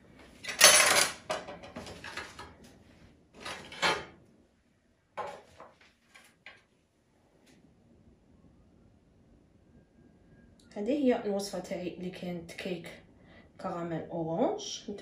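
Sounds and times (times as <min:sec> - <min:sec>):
tray and utensils clattering: 0:03.4 - 0:04.2.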